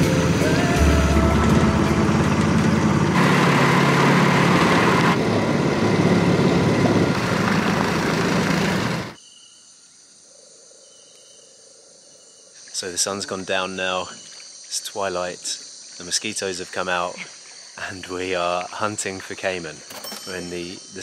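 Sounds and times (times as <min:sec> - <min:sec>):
boat motor running: 0:00.0 - 0:09.2
night insects chirring: 0:09.2 - 0:21.0.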